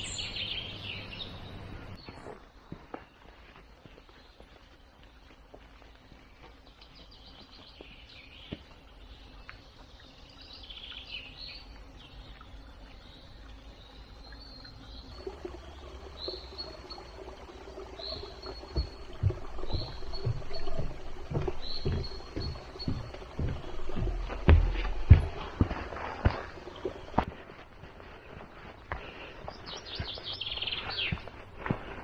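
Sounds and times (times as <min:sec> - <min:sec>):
birds chirping and singing: 0:00.0 - 0:02.4, 0:06.0 - 0:27.4, 0:28.0 - 0:32.0
faint outdoor background noise: 0:00.0 - 0:32.0
repeated bird call: 0:15.1 - 0:25.5
low tones and heavy thumps: 0:15.1 - 0:27.3.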